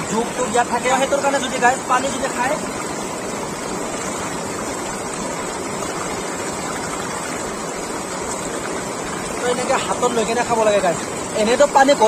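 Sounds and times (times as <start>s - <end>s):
river rushing over rocks: 0.0s - 12.0s.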